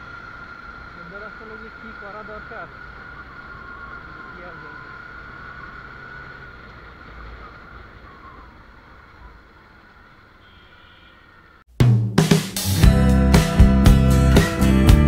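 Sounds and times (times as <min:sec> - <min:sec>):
motorcycle engine: 0:00.0 - 0:11.7.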